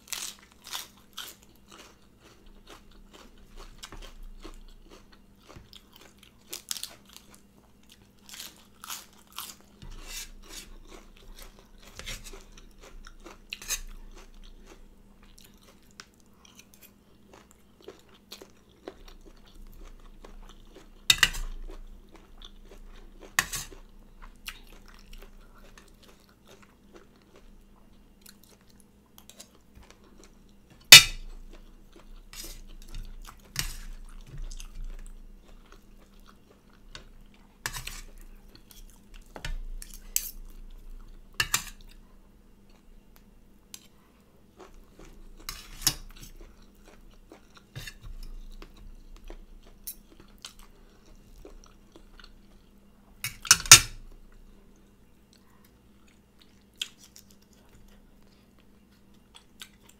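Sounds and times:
crunching and chewing: 0.0s - 59.9s
cutlery clinking on plate: 31.0s - 31.3s.

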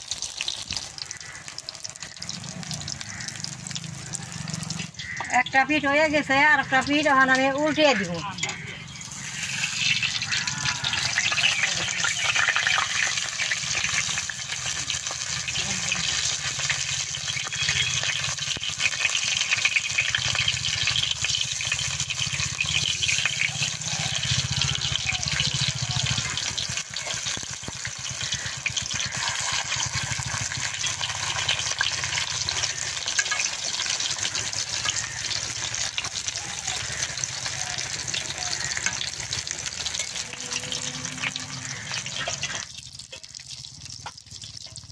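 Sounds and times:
fritters sizzling in hot oil: 0.0s - 44.9s
metal spatula scraping and clinking: 33.0s - 34.1s, 39.6s - 43.3s.

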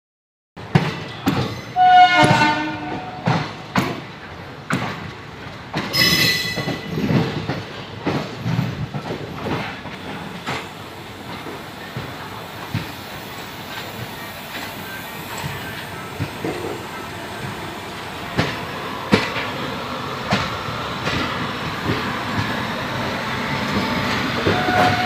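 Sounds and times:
train wheels knocking over rail joints: 0.6s - 10.7s, 11.3s - 19.6s
train horn: 1.8s - 3.5s, 24.4s - 25.0s.

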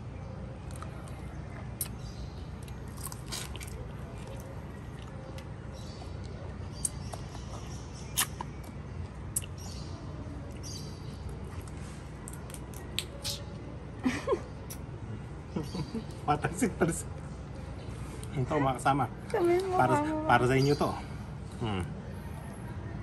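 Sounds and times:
person chewing and lip smacking: 0.6s - 9.7s, 10.5s - 13.6s.

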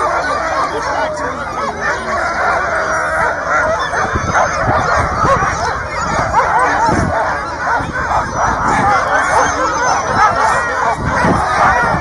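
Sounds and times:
sled dogs yelping and howling: 0.0s - 12.0s
wind rumbling on microphone: 2.2s - 12.0s.

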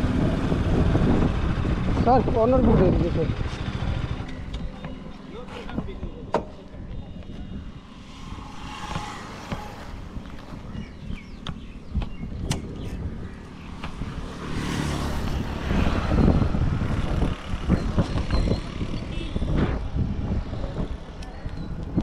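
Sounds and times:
low engine hum: 0.0s - 22.0s
vehicle passing close: 6.6s - 20.8s.

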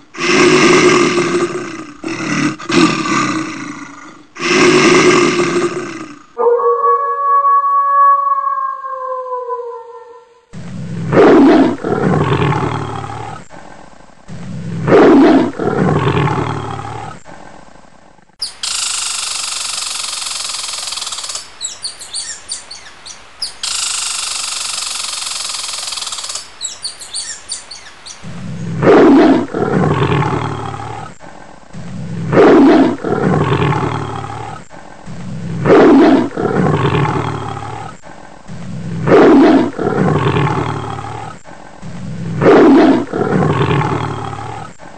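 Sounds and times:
steady hiss: 0.0s - 6.4s, 10.4s - 44.9s
lion roaring: 0.1s - 13.4s, 14.3s - 17.2s, 28.3s - 31.2s, 31.8s - 34.6s, 35.2s - 38.0s, 38.6s - 44.7s.

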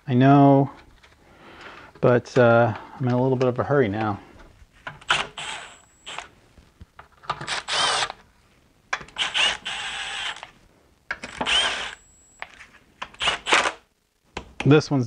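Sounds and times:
cordless drill driving bolts: 4.9s - 6.3s, 7.3s - 8.2s, 9.0s - 10.5s, 11.2s - 13.8s.

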